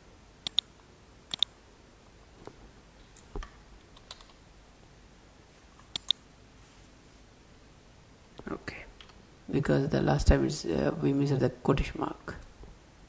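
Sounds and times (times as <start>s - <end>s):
mouse and keyboard clicks: 0.4s - 0.7s, 1.3s - 1.5s, 5.9s - 6.2s.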